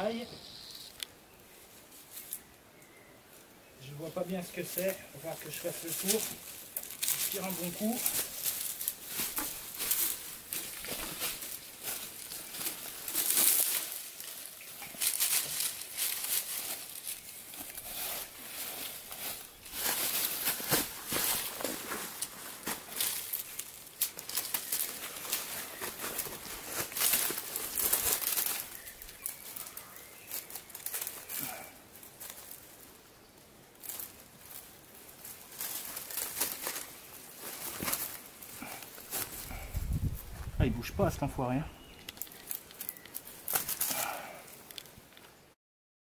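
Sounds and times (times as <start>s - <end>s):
faint bird chirps: 0.0s - 1.4s, 2.1s - 3.8s, 28.6s - 31.3s, 41.6s - 43.2s
rope rustling and scraping: 4.2s - 32.8s, 33.8s - 40.6s, 42.0s - 45.3s.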